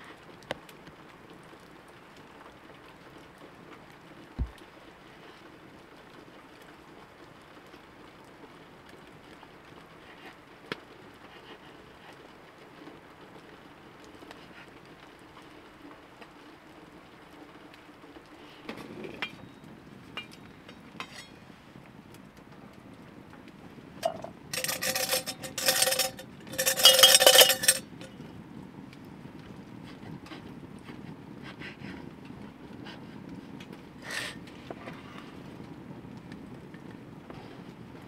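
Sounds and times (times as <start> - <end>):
metal pot knocking and clinking: 21.0 - 21.3, 24.0 - 28.1.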